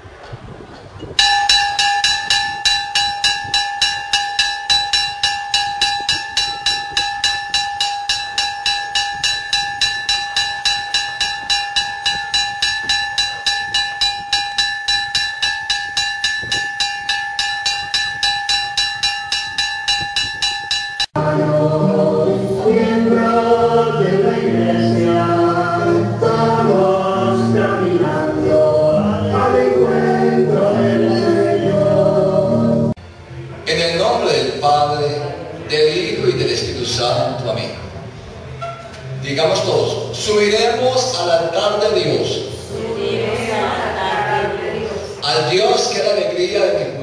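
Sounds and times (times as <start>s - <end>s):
church bell ringing rapidly: 1.2s - 21.2s.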